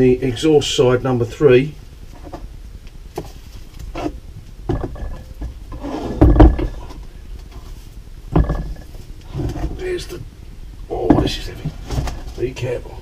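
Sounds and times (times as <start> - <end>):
metal thud and scrape: 4.0 - 7.0, 8.3 - 9.8.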